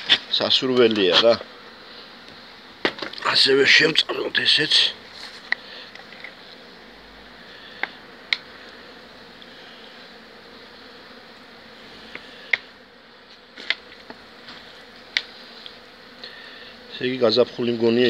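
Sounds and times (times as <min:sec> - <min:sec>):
honeybees buzzing: 0:00.0 - 0:18.0.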